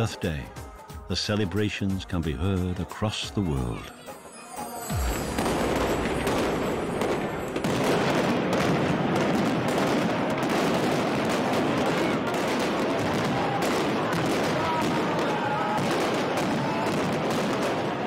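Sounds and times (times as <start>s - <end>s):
fireworks crackling bangs: 4.9s - 18.0s.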